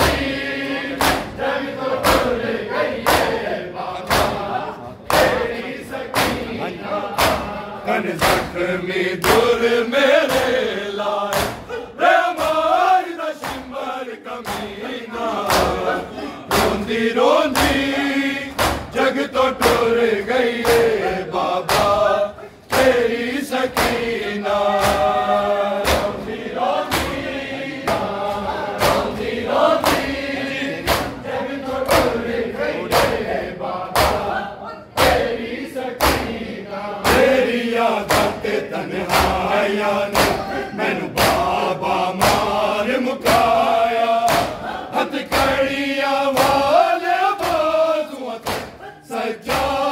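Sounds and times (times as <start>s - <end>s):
men chanting in unison: 0.0s - 49.9s
hands slapping chests: 0.9s - 1.4s, 2.0s - 2.4s, 3.0s - 3.4s, 4.0s - 4.5s, 5.1s - 6.6s, 7.2s - 8.6s, 9.2s - 9.6s, 11.3s - 11.7s, 12.3s - 12.8s, 13.4s - 13.8s, 14.4s - 14.8s, 15.4s - 17.9s, 18.5s - 23.1s, 23.7s - 24.1s, 24.7s - 27.2s, 27.8s - 31.2s, 31.8s - 32.3s, 32.9s - 33.3s, 34.0s - 34.3s, 36.0s - 36.4s, 38.0s - 40.5s, 41.1s - 41.6s, 42.2s - 42.6s, 43.2s - 45.7s, 46.3s - 46.8s, 47.4s - 47.7s, 48.4s - 48.8s.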